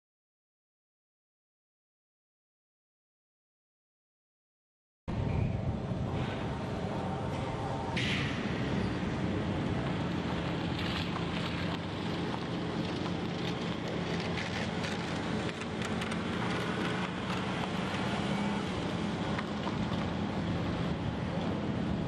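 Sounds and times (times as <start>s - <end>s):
distant heavy machinery hum: 5.1s - 22.0s
wind noise: 5.1s - 22.0s
car driving past: 6.1s - 21.3s.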